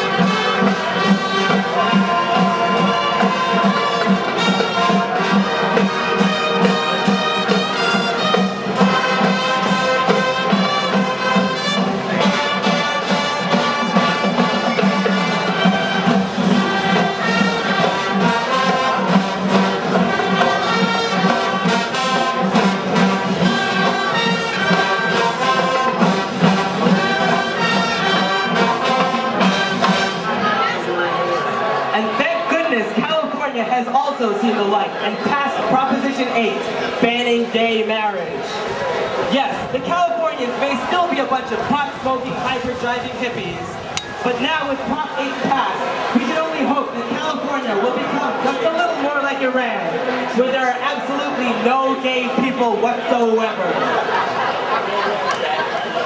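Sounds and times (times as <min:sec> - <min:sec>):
marching band playing: 0:00.0 - 0:56.0.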